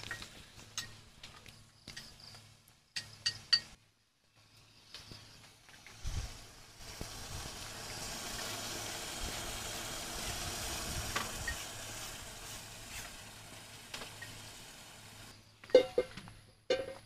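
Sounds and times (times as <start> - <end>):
food sizzling in hot oil: 5.8 - 15.3.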